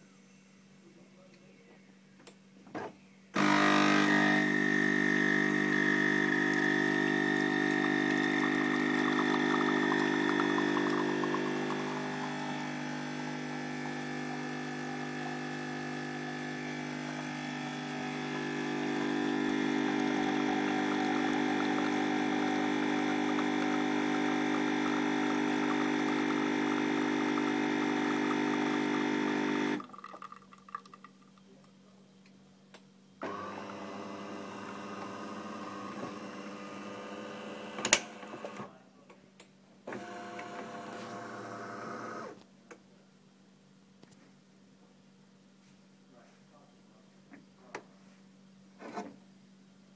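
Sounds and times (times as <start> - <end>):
coffee machine pump humming: 3.4 - 31.4, 33.2 - 38.6, 39.9 - 42.4.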